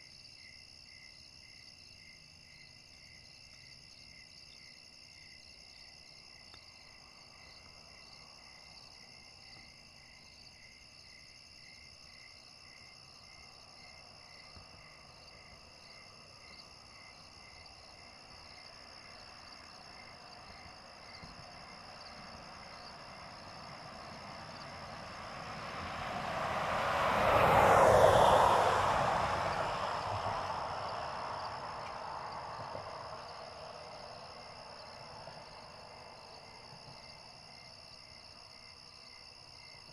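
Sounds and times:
crickets chirping: 0:00.0 - 0:39.9
vehicle passing by: 0:18.1 - 0:37.9.

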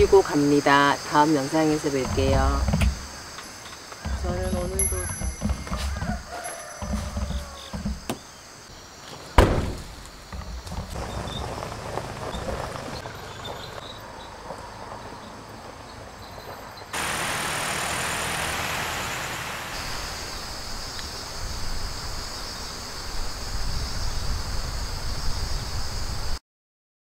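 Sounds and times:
insects chirring: 0:00.0 - 0:26.4.

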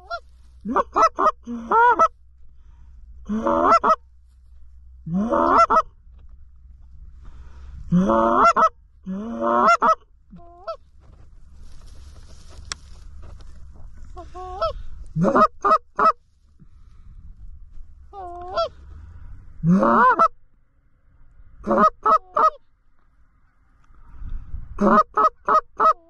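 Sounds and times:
goose call moans: 0:00.0 - 0:02.1, 0:03.2 - 0:04.0, 0:05.0 - 0:05.9, 0:07.3 - 0:10.8, 0:13.4 - 0:16.2, 0:18.1 - 0:20.4, 0:21.6 - 0:22.6, 0:24.8 - 0:26.0
goose call honks and clucks: 0:00.0 - 0:02.2, 0:03.2 - 0:04.1, 0:04.8 - 0:06.0, 0:07.8 - 0:16.7, 0:18.1 - 0:20.4, 0:21.5 - 0:22.7, 0:24.7 - 0:26.0.

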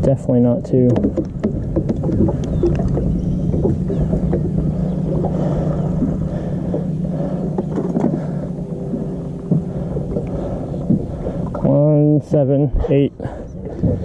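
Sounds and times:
electric motor humming: 0:01.3 - 0:11.7.

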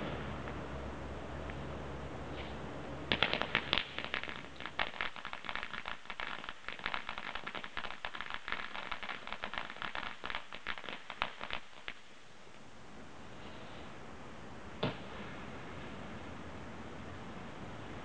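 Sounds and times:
fireworks popping and crackling: 0:02.3 - 0:12.6.

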